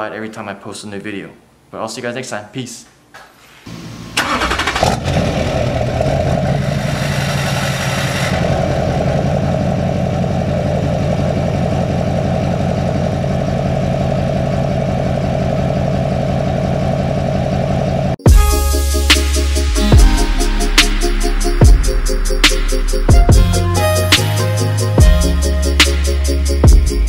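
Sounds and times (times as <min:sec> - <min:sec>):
diesel engine starting and idling: 0:03.7 - 0:18.8.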